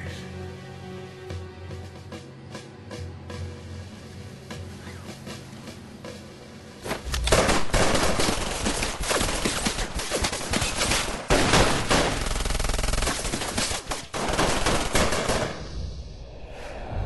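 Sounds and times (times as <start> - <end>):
rapid handgun fire: 7.2 - 15.6.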